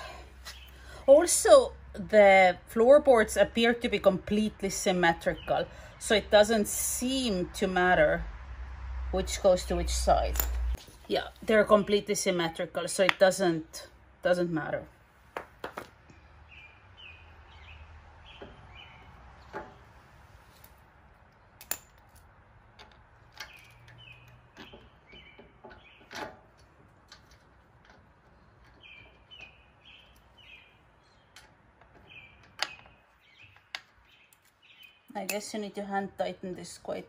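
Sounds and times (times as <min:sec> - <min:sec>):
small bird chirping: 0:16.1 - 0:19.5, 0:23.4 - 0:26.2, 0:28.4 - 0:35.3.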